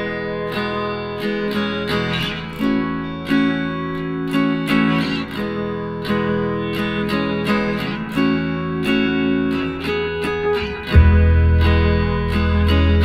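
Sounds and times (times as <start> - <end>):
strummed guitar chords: 0.0 - 13.0.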